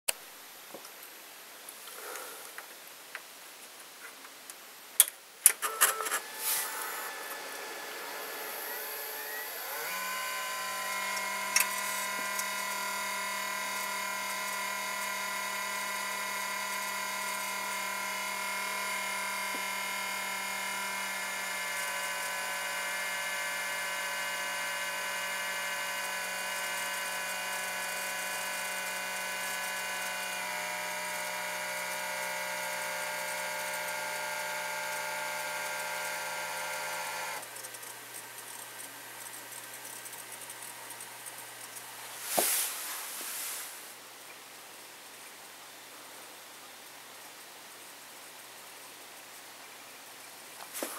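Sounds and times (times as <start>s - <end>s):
computer whining buzz: 5.6s - 42.0s.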